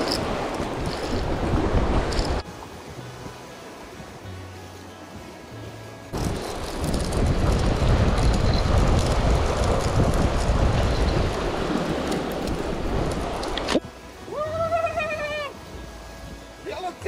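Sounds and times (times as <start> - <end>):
wind rumble on microphone: 0.0 - 2.4, 6.1 - 13.9
faint background music: 2.4 - 8.0, 13.7 - 17.0
waves washing against rocks: 6.2 - 13.8.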